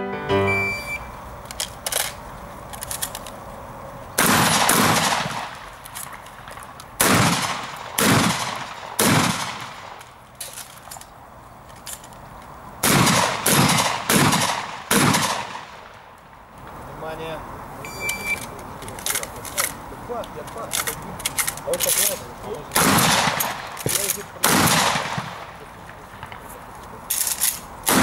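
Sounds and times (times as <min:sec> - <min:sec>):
shotgun firing: 0:04.2 - 0:05.6, 0:07.0 - 0:10.0, 0:12.8 - 0:15.9, 0:22.7 - 0:25.6.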